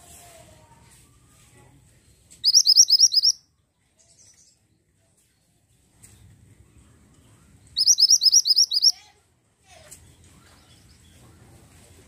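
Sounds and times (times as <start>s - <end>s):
bird chirping: 2.3s - 3.4s, 7.7s - 9.0s.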